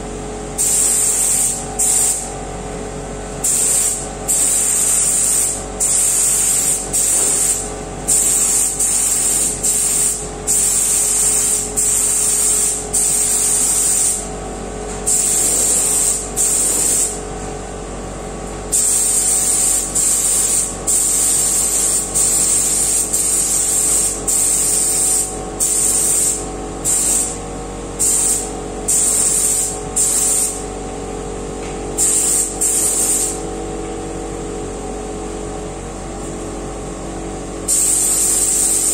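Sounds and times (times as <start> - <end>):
steady hum: 0.0 - 38.9
paint spray gun hissing: 0.6 - 2.3, 3.4 - 14.3, 15.1 - 17.2, 18.7 - 27.4, 28.0 - 30.6, 32.0 - 33.4, 37.7 - 38.9.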